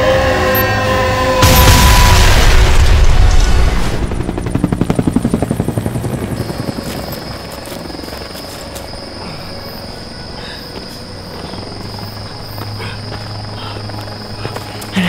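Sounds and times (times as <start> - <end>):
explosion rumble: 1.4 - 4.2.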